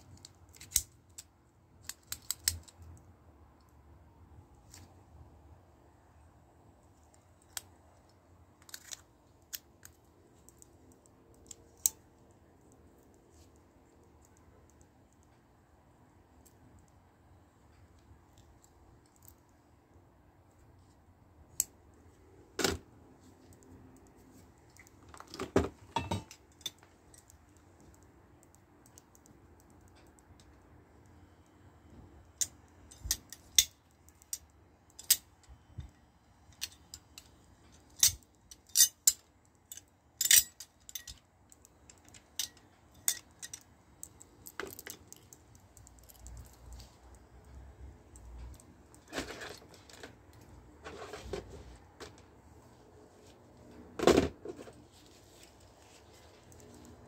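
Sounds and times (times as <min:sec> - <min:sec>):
metal and plastic gear clinking: 0:37.8 - 0:41.2.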